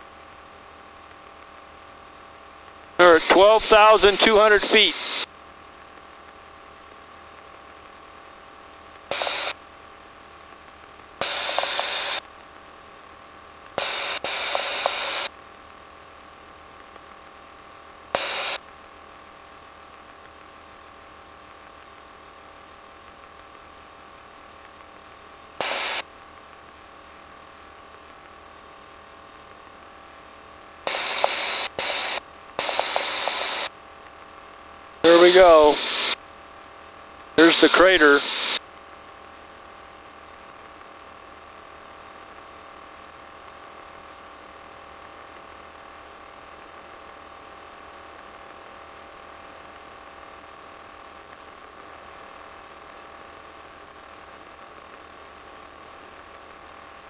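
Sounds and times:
intercom hiss and hum: 3.0s - 5.3s, 9.0s - 9.6s, 11.2s - 12.2s, 13.8s - 15.3s, 18.1s - 18.6s, 25.5s - 26.1s, 30.8s - 33.8s, 34.4s - 36.2s, 36.9s - 38.6s
radio noise bursts: 3.0s - 5.3s, 9.1s - 9.6s, 11.2s - 12.2s, 13.8s - 15.3s, 18.2s - 18.6s, 25.6s - 26.0s, 30.9s - 33.7s, 35.1s - 36.2s, 37.4s - 38.6s.

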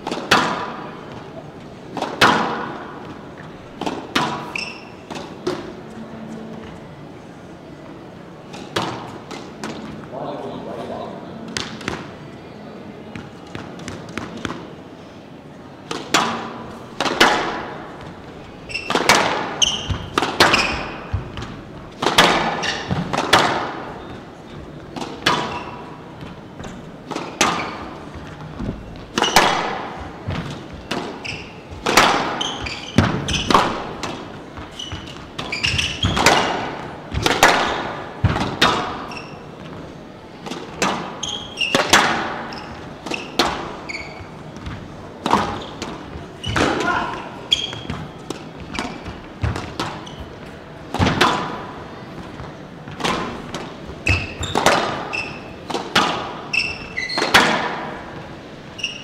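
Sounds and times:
squash ball hit by rackets: 0.0s - 1.3s, 1.9s - 3.2s, 3.8s - 5.8s, 8.5s - 9.9s, 15.8s - 58.2s
shoes squeaking on wooden floor: 3.0s - 5.1s, 17.9s - 23.2s, 23.9s - 37.2s, 38.8s - 40.0s, 41.1s - 50.6s, 52.0s - 55.7s, 56.4s - 57.5s, 58.3s - 59.0s.

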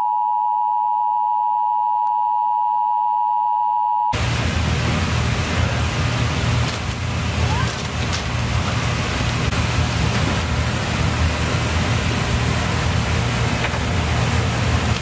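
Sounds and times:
two-tone electronic alert tone: 0.0s - 4.2s
rushing storm wind: 4.2s - 15.0s.

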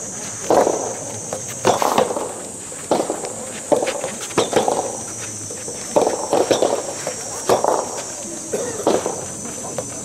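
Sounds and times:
shoes scuffing on court: 0.0s - 10.0s
tennis ball hits: 0.4s - 5.1s.

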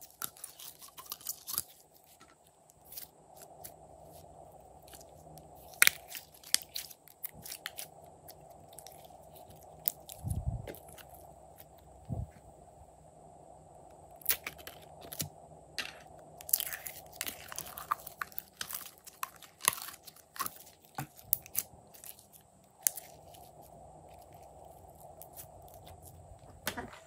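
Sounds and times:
slime crackling and clicking: 16.4s - 23.3s.

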